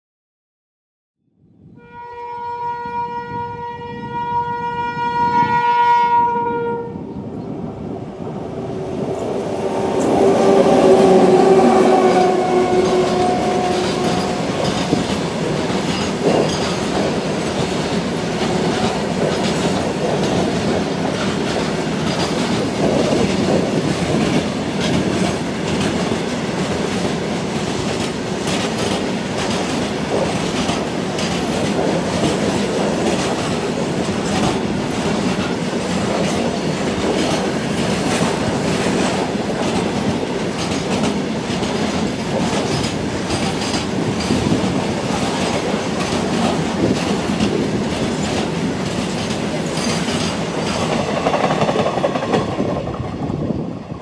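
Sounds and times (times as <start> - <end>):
locomotive horn: 1.8 - 7.1, 10.0 - 14.9
freight train rumbling past: 2.9 - 54.0
wheels clacking over rail joints: 10.0 - 53.0.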